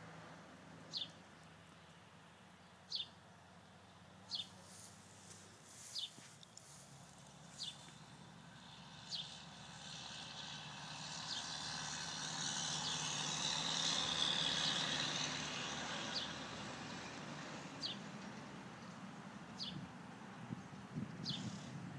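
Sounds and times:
distant vehicle passing: 0.0 - 21.9
bird chirps: 2.9 - 3.2.

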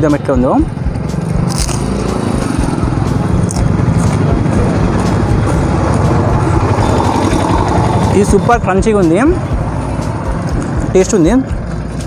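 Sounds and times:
vehicle engine running: 0.0 - 12.0
crunching crisp snack: 1.3 - 2.0.

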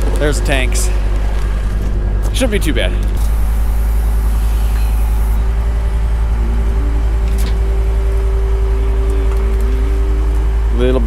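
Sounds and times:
machine engine running: 0.0 - 11.0
steady whine: 0.0 - 11.0
short pitch-shifting tones: 2.9 - 11.0.

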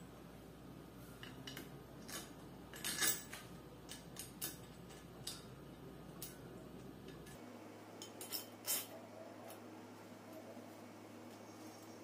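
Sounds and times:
light metallic clicks and clinks: 1.2 - 7.4, 8.0 - 9.6.

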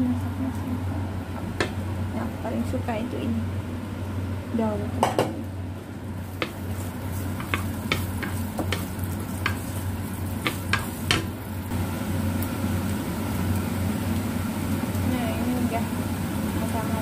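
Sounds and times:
low steady hum: 0.0 - 17.0
shallots sizzling in oil: 0.2 - 17.0
wooden spatula clicking on pan: 7.4 - 9.6, 10.4 - 11.3.

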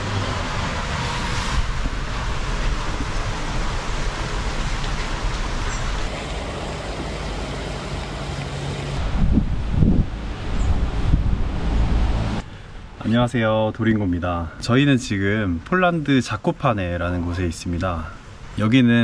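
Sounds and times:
wind rushing through leafy trees: 0.0 - 13.9.

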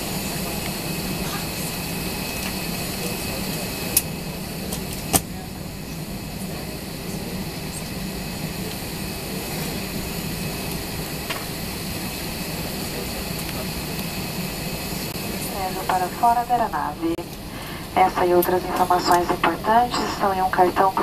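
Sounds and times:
aircraft cabin hum: 0.0 - 21.0.

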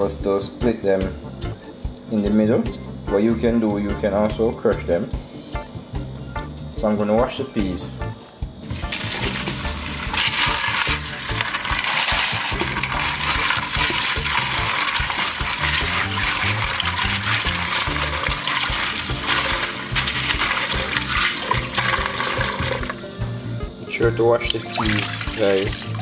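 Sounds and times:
hand rubbing beans in water: 8.7 - 23.1, 24.4 - 26.0
tap water running into tub: 8.7 - 23.2, 24.3 - 26.0.

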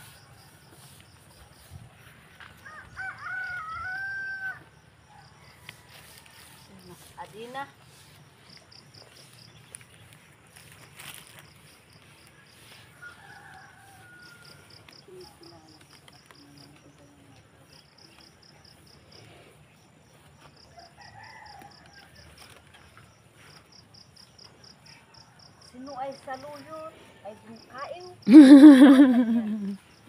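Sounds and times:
insects chirping: 0.0 - 30.0
faint rooster crowing: 2.4 - 7.1, 12.5 - 15.4, 20.4 - 23.2.

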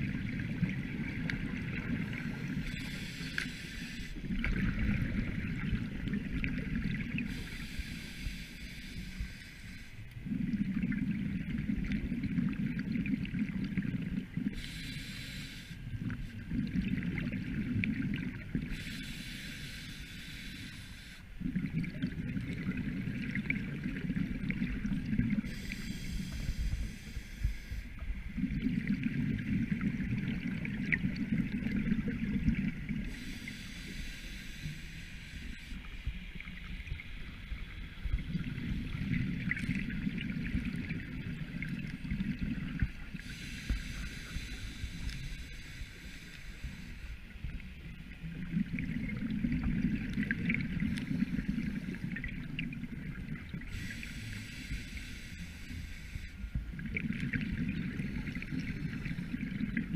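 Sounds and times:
gurgling exhaled bubbles: 4.2 - 7.4, 10.2 - 14.6, 16.0 - 18.7, 21.4 - 27.0, 28.3 - 33.3, 38.0 - 44.0, 48.2 - 54.2, 56.7 - 59.9
diver breathing through regulator: 7.3 - 9.9, 14.6 - 15.9, 18.7 - 21.3, 25.4 - 28.0, 33.1 - 35.8, 43.2 - 47.2, 53.6 - 56.6.

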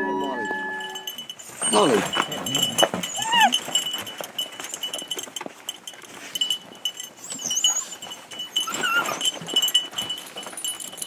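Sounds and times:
collars jingling: 0.0 - 11.0
dog whining: 0.3 - 3.8, 7.2 - 9.6.

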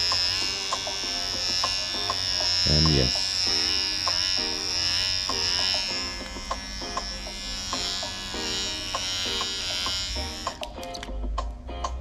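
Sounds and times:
electric hair trimmer whining: 0.0 - 10.8
background music with plucked notes: 0.0 - 12.0.

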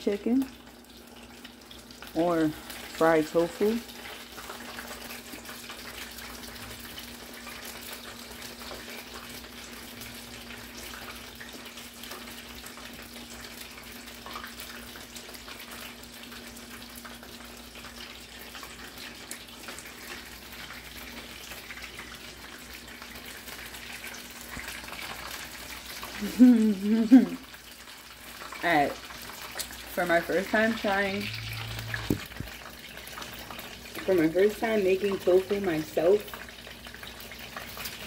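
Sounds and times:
oil sizzling in a pan: 0.0 - 38.0
low steady hum: 29.8 - 32.6.

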